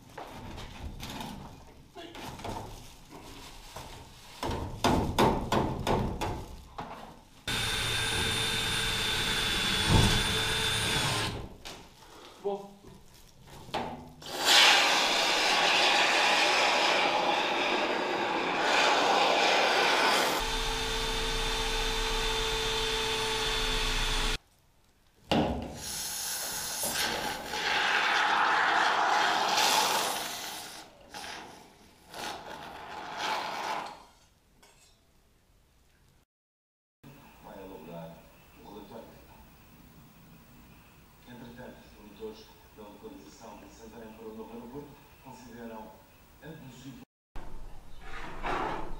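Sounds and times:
woodworking machine humming: 7.5s - 11.4s, 18.8s - 24.4s.

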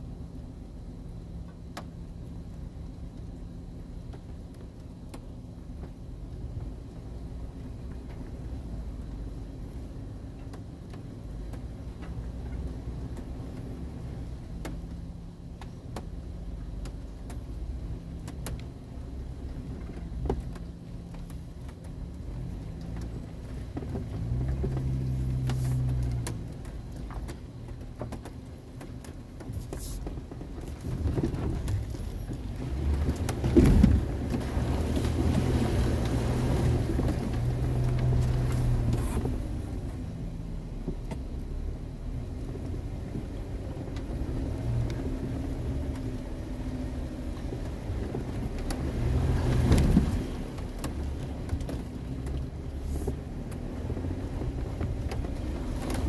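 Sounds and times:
tyres hissing through mud: 24.2s - 26.3s, 29.5s - 30.1s, 52.7s - 54.2s.

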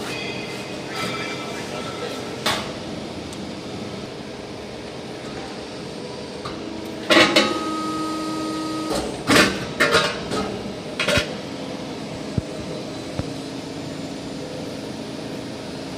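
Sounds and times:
machine hum: 2.7s - 15.9s
machine whine: 3.7s - 9.4s.

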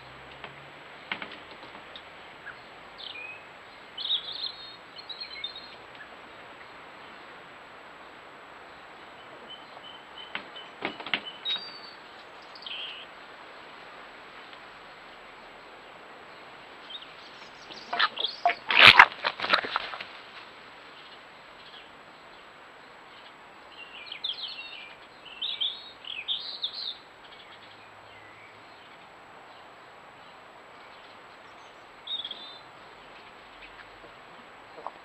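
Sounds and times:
small birds chirping: 1.0s - 7.3s, 8.0s - 13.8s, 14.4s - 20.2s, 20.9s - 35.0s
fox cubs chattering: 16.9s - 20.2s, 33.2s - 35.0s.

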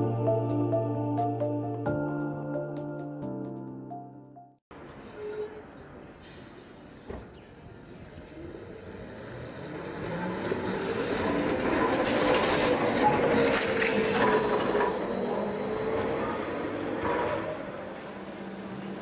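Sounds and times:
road noise: 4.7s - 19.0s.

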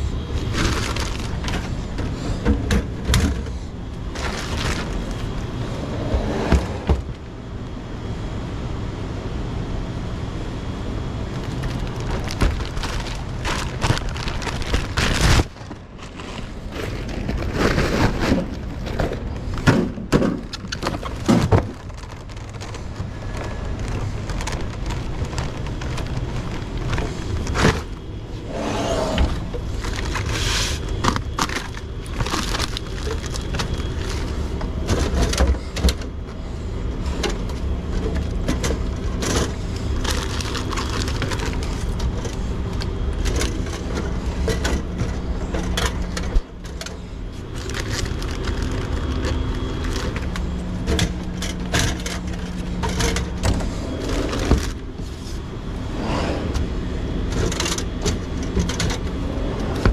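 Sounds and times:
shrink-wrap crinkling: 0.0s - 2.2s, 4.0s - 5.6s, 11.2s - 19.7s, 20.4s - 28.6s, 29.2s - 35.7s, 37.2s - 55.5s
steady low hum: 0.0s - 59.9s
plastic bottles clunking on shelves: 16.8s - 27.9s.

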